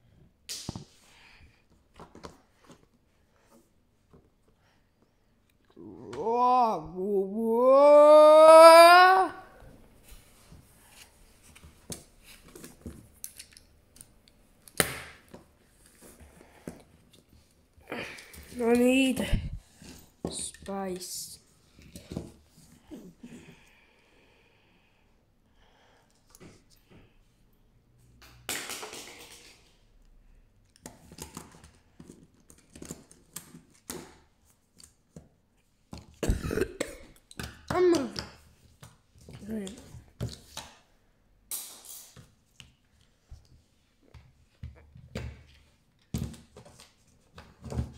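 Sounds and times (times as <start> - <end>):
child vocal noise: 5.7 - 9.7
plastic toys knocking and clicking: 37.2 - 40.8.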